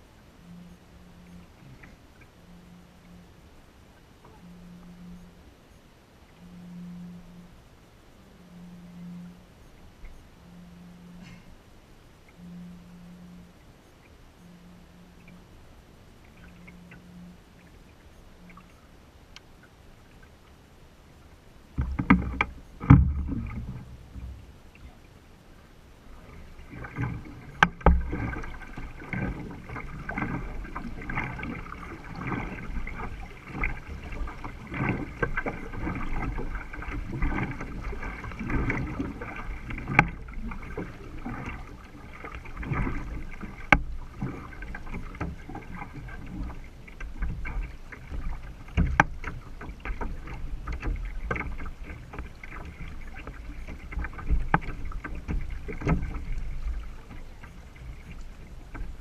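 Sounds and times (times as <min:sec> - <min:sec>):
water sloshing along canoe hull: 0:00.0 - 0:59.0.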